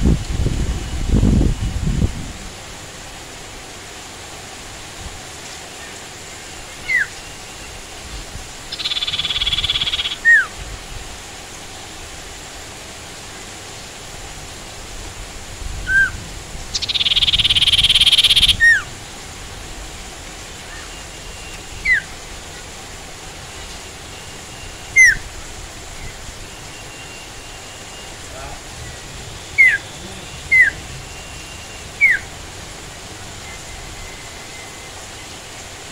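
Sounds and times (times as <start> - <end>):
rain hiss: 0.0 - 35.9
songbird chip notes: 5.7 - 10.5, 15.9 - 18.9, 20.5 - 35.6
buzzy bird trill: 8.6 - 10.5, 15.9 - 18.9, 23.5 - 25.3, 25.9 - 32.4.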